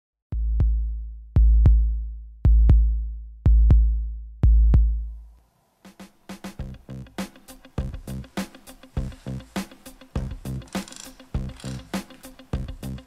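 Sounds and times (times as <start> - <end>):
drum machine bass booms: 0.3 - 5.2, 6.0 - 10.7, 11.4 - 13.0
electronic music: 6.5 - 13.0.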